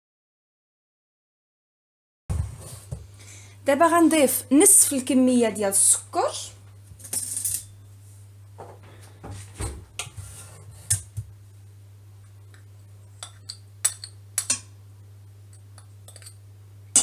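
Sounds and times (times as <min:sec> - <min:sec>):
steady low hum: 0:02.3 - 0:17.0
metal spoon clinking on dishes: 0:07.0 - 0:07.8, 0:15.5 - 0:17.0.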